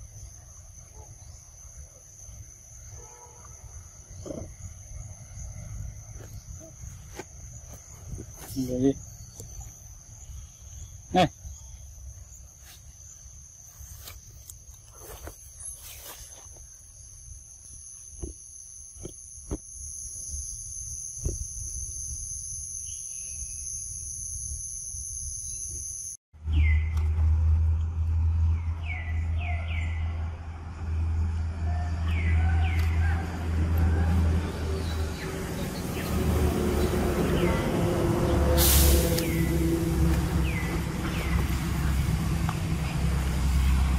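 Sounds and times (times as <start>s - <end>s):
high-pitched insect drone: 15.2s - 26.2s.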